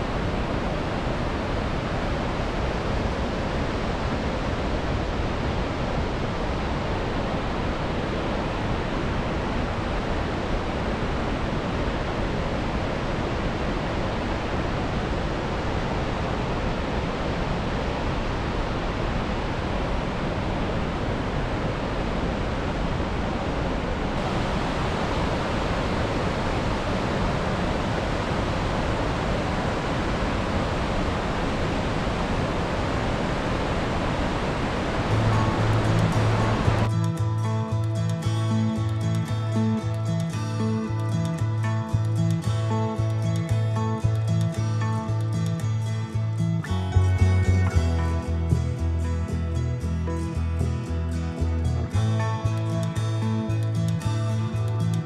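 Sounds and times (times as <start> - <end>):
waterfall and rapids rushing: 0.0 - 55.0.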